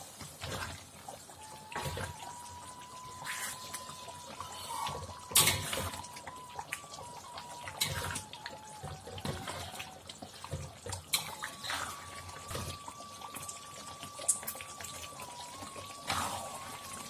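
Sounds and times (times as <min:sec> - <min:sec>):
curry bubbling: 0:00.0 - 0:17.0
faint steady tone: 0:01.3 - 0:17.0.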